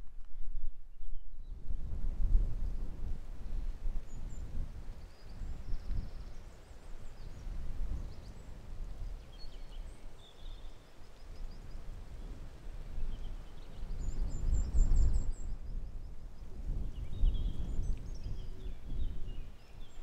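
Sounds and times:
wind buffeting microphone: 0:00.0 - 0:20.0
small birds chirping: 0:03.5 - 0:11.8, 0:13.0 - 0:20.0.

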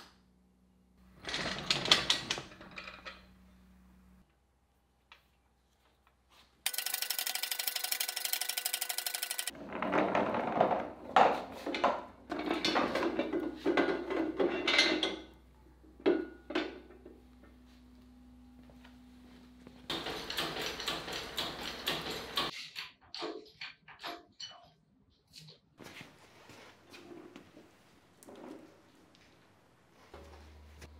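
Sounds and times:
ratchet strap clicking: 0:06.7 - 0:09.5.

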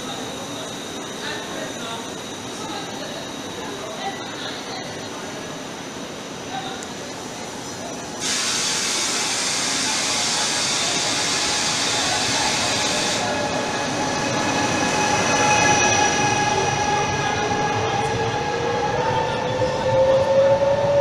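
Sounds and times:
train wheels rumbling on rails: 0:06.7 - 0:21.0
loud hiss: 0:08.2 - 0:13.4.

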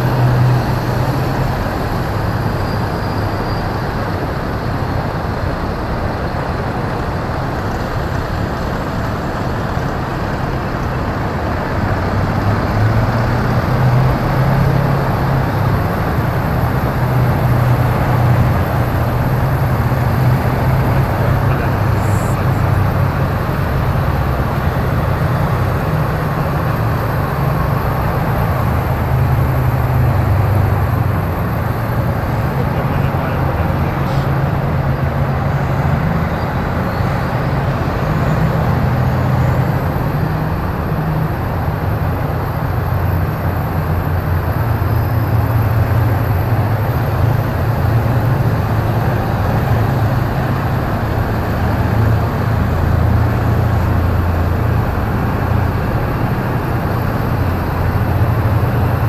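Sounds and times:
deep diesel engine drone: 0:00.0 - 0:59.0
track and road rumble: 0:00.0 - 0:59.0.

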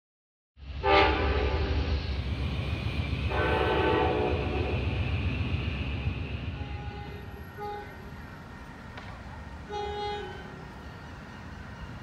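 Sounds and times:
low rumble of train: 0:00.6 - 0:12.0
train horn blasts: 0:00.8 - 0:01.8, 0:03.3 - 0:04.8, 0:06.6 - 0:08.1, 0:09.6 - 0:10.6.

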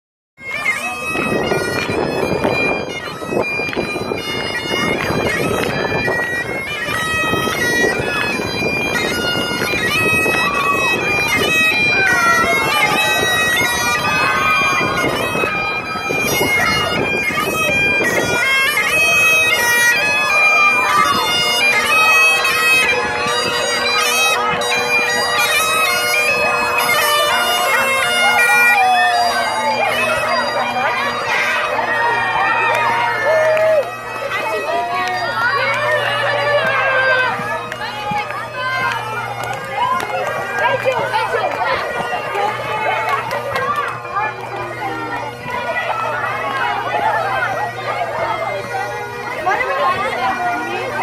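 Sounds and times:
bagpipe melody over drone: 0:00.4 - 0:51.0.

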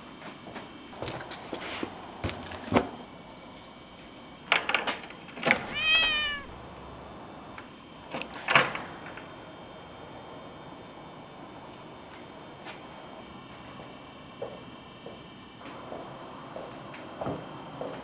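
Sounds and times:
cat meowing: 0:05.6 - 0:06.6.

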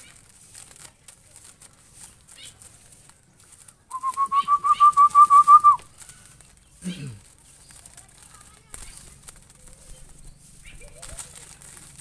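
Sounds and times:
dove calling: 0:02.0 - 0:08.0, 0:08.7 - 0:12.0.

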